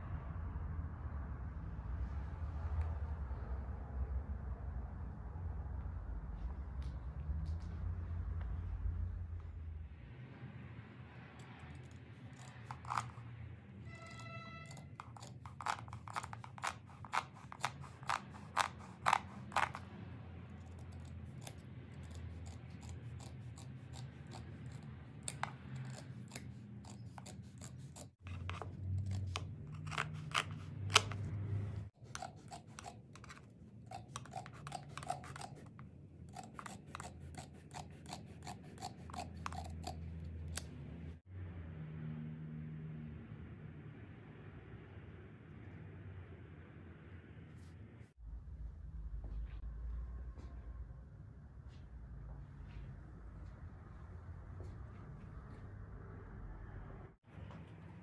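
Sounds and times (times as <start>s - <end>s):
scissors snipping carpet fringe: 11.4s - 13.3s, 13.9s - 40.9s.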